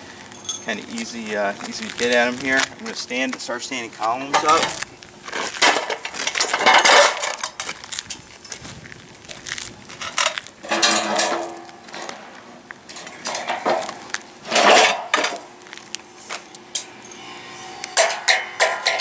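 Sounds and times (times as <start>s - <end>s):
metal beams clanking and scraping: 4.2s - 7.7s, 10.0s - 12.3s, 12.9s - 15.4s, 16.8s - 19.0s.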